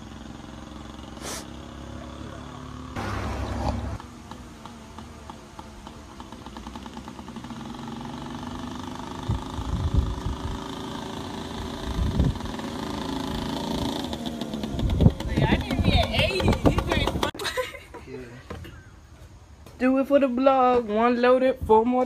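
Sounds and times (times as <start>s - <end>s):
dirt bike two-stroke engine: 0.0s - 17.4s.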